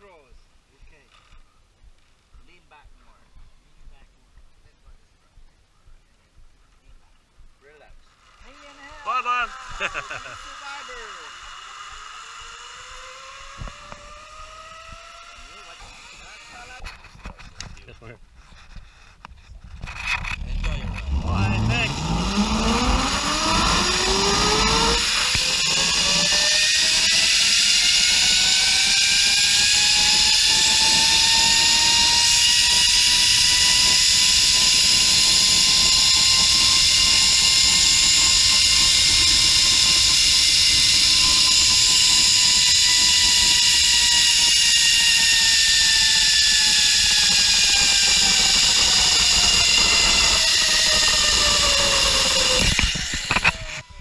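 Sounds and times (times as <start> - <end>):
steady rushing hiss: 7.5 - 13.6
zipline pulleys whining: 8.1 - 17.1, 19.8 - 54.0.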